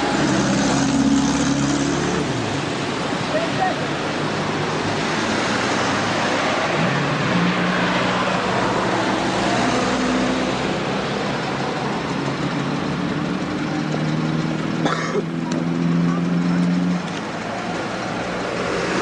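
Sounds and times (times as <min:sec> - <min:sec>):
broad rushing noise: 0:00.0 - 0:19.0
engine running: 0:08.6 - 0:19.0.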